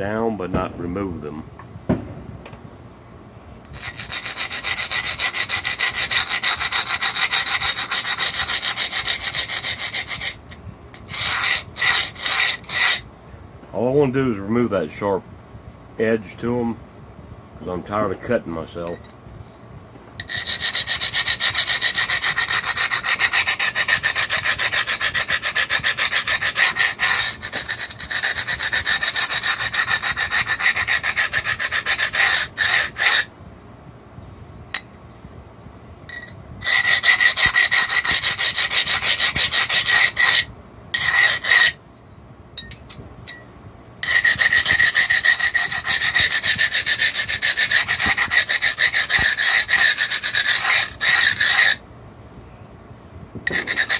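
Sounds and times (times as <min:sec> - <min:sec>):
stone rasping against quartz: 0:03.7 - 0:13.1, 0:20.2 - 0:33.3, 0:36.1 - 0:41.8, 0:44.0 - 0:51.8, 0:53.4 - 0:53.9.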